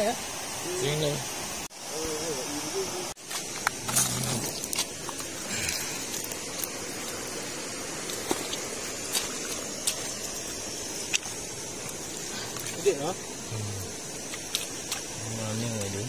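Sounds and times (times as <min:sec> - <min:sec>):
river flowing over rocks: 0:03.2 - 0:13.4.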